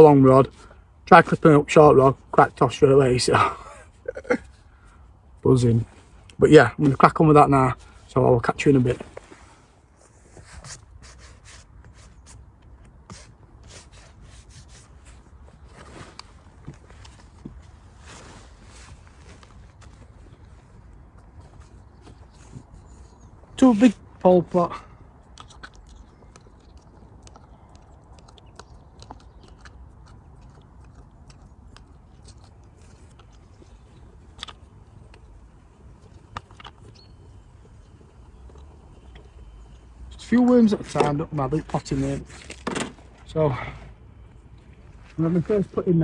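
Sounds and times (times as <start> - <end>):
low outdoor rumble: 0.0 - 46.0
rubbing and scraping close up: 5.5 - 24.6, 31.6 - 46.0.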